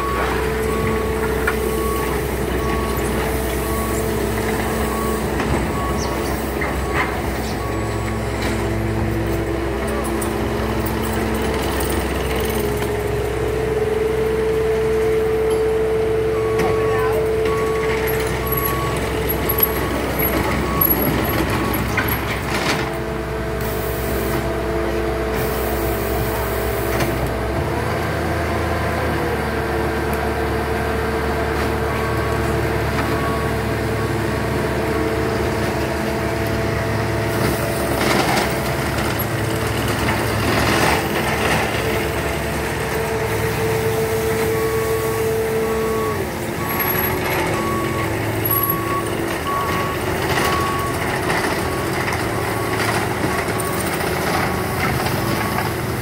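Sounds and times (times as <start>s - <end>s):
reversing alarm beeping: 0.0s - 24.4s, 31.8s - 35.5s, 36.2s - 56.0s
diesel engine running: 0.0s - 56.0s.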